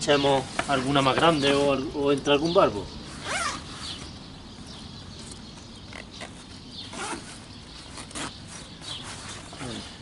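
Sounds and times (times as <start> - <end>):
nylon sling rustling: 3.0 - 4.2, 5.2 - 10.0
soft handling noises: 5.2 - 10.0.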